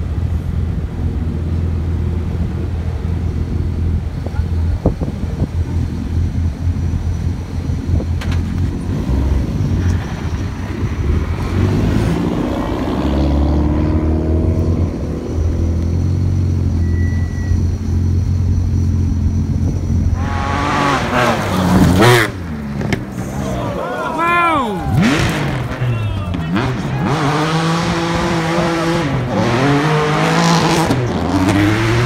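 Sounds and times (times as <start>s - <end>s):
rally car engines rumbling: 0.0s - 32.0s
car engine revving: 5.0s - 32.0s
rally car passing at speed: 20.1s - 23.8s, 24.7s - 32.0s.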